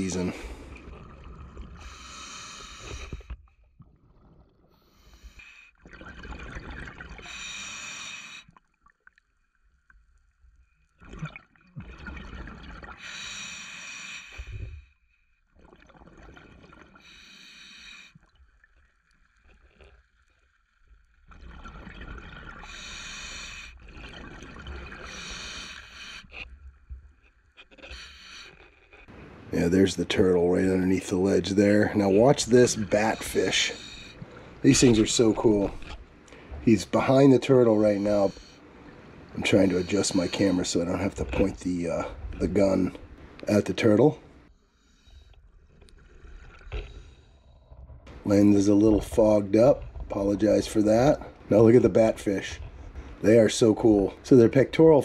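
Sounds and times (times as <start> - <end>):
scuba regulator breathing: 0.0 - 1.0, 1.8 - 3.4, 4.7 - 5.8, 7.2 - 8.5, 13.0 - 15.0, 17.0 - 18.2, 22.6 - 24.2, 24.8 - 26.5, 27.7 - 29.4, 31.6 - 37.0, 37.6 - 42.2.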